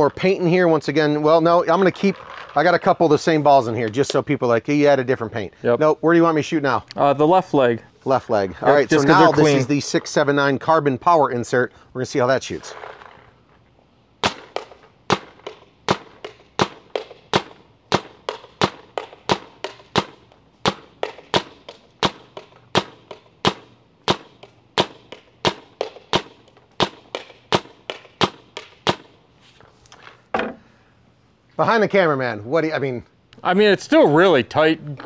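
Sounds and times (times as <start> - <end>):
paintball marker firing: 14.2 - 29.2.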